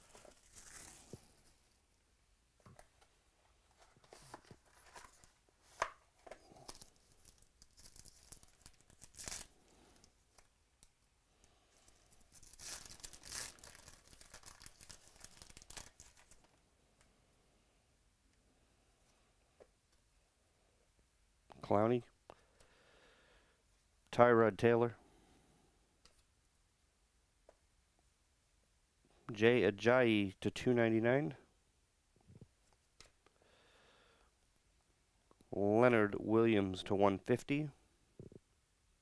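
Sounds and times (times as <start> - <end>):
card pack wrappers tearing: 0.0 - 1.3, 6.5 - 9.6, 12.2 - 16.4.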